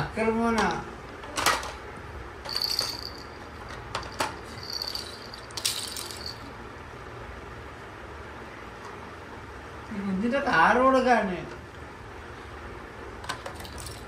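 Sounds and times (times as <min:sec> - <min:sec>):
baby rattle jingling: 0:02.5 - 0:03.4, 0:04.1 - 0:06.5.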